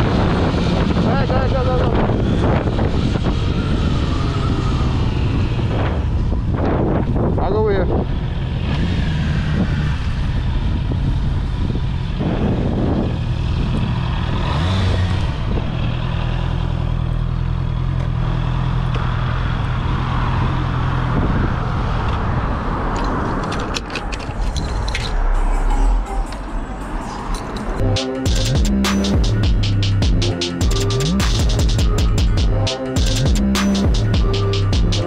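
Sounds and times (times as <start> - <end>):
wind noise on microphone: 0.0 - 16.0, 20.7 - 26.0
motorcycle engine running: 27.8 - 35.0.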